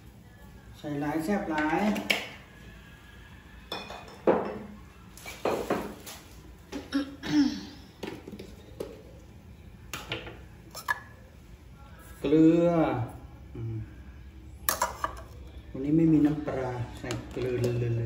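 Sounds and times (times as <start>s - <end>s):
kitchenware clinking and knocking: 3.7s - 4.8s, 5.4s - 6.1s.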